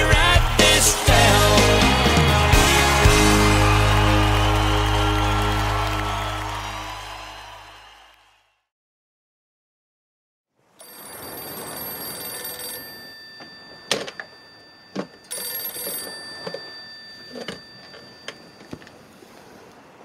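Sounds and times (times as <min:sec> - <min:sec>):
telephone ringing: 0:10.8 - 0:18.9.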